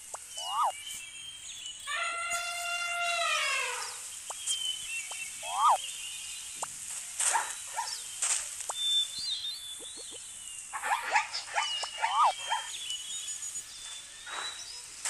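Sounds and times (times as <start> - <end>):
high chirping whistles: 0.0 - 5.8, 10.8 - 15.0
animal yelps and squeals: 0.4 - 0.7, 5.4 - 5.8, 10.8 - 12.7.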